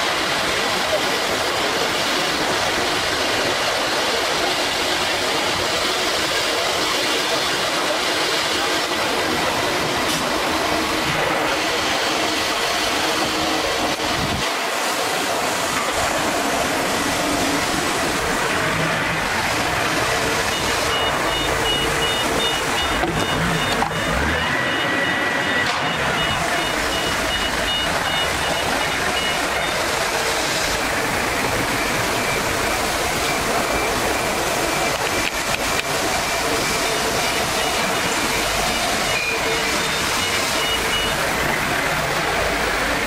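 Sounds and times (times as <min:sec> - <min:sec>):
cnc router whining and cutting wood: 0:00.1 - 0:43.0.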